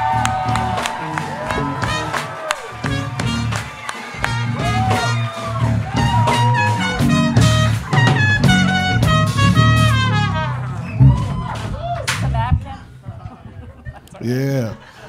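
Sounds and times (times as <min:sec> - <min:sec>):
trumpet: 0:00.0 - 0:11.3
electric bass: 0:00.0 - 0:13.5
drums: 0:00.0 - 0:14.0
trombone: 0:01.2 - 0:10.8.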